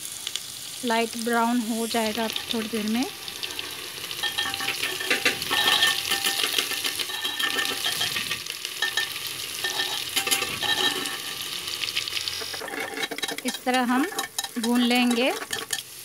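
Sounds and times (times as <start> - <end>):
onions sizzling in hot oil: 0.0 - 16.0
spatula scraping metal pot: 3.4 - 11.5, 12.4 - 15.8.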